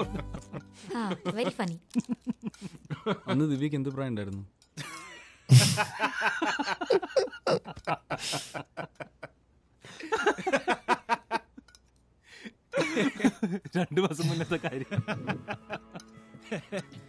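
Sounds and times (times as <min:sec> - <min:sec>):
person chuckling and snickering: 0:00.0 - 0:03.0, 0:04.8 - 0:09.3, 0:14.2 - 0:17.0.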